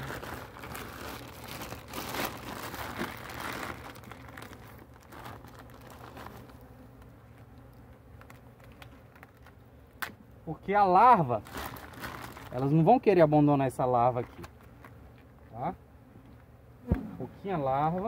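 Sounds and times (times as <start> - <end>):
gloved hands rustling fabric: 0.0 - 6.6, 11.3 - 12.8.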